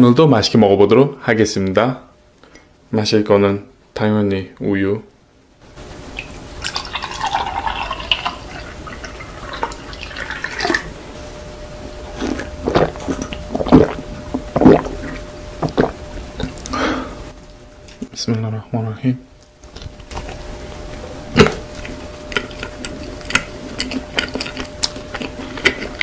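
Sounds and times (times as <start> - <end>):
milk pouring into mug: 6.6 - 10.9
person gulping: 12.1 - 17.0.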